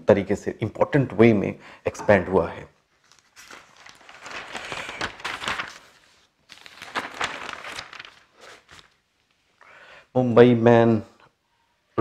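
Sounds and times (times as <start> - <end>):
newspaper pages rustling: 2.8 - 9.5.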